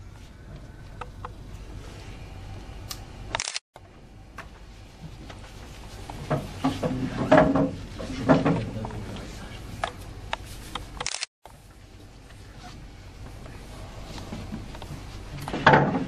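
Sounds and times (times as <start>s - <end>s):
camera shutter clicks: 3.3s - 3.6s, 11.0s - 11.3s.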